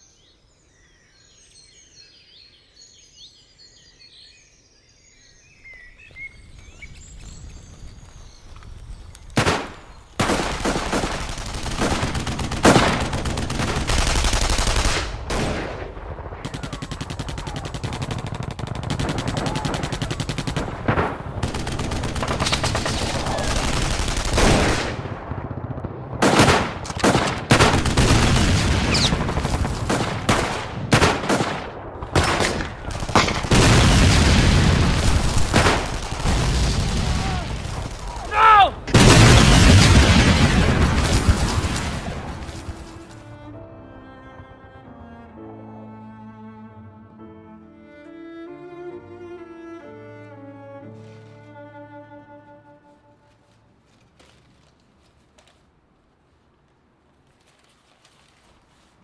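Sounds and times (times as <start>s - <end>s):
loud gunshots: 9.4s - 42.8s
rapid machine-gun fire: 10.2s - 38.2s.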